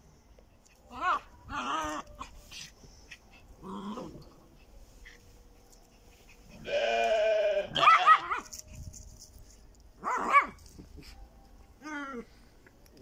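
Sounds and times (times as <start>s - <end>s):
sheep bleating: 6.6s - 8.2s
dog yapping: 7.7s - 8.5s.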